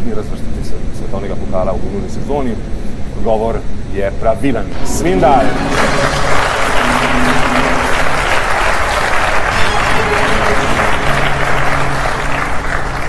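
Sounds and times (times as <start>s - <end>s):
game-show music: 4.6s - 13.0s
studio audience applauding: 5.0s - 13.0s.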